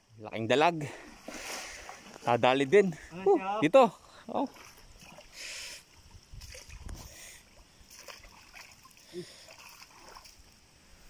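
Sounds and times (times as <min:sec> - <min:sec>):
splashing stream water: 0:00.9 - 0:02.4, 0:04.3 - 0:10.8.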